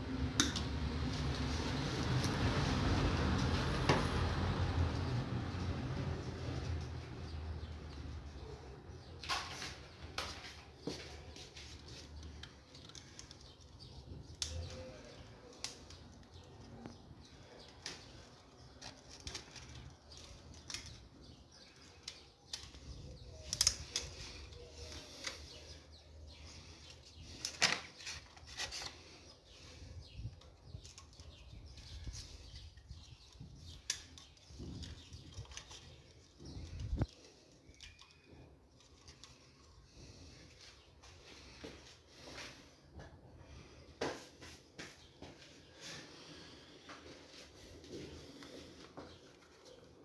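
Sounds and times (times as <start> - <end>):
rustling of wires: 0.3 - 50.0.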